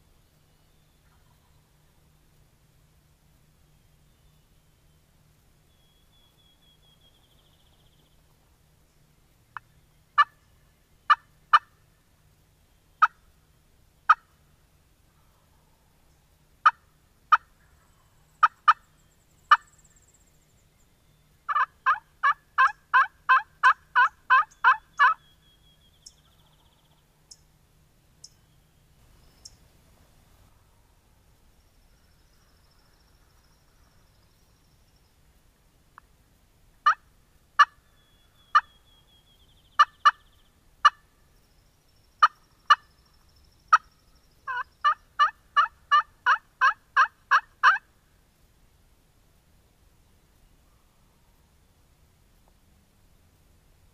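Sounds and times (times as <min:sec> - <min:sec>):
turkey clucks: 0:01.0 - 0:01.7, 0:09.6 - 0:10.5, 0:11.1 - 0:11.8, 0:13.0 - 0:13.2, 0:14.1 - 0:14.4, 0:16.6 - 0:18.8, 0:21.5 - 0:25.2, 0:36.8 - 0:37.0, 0:37.6 - 0:37.8, 0:38.5 - 0:38.7, 0:39.8 - 0:40.2, 0:40.8 - 0:41.0, 0:42.2 - 0:42.9, 0:44.5 - 0:47.9
turkey yelps: 0:21.5 - 0:25.2, 0:37.6 - 0:37.8, 0:38.5 - 0:38.7, 0:42.2 - 0:42.9, 0:44.5 - 0:47.9.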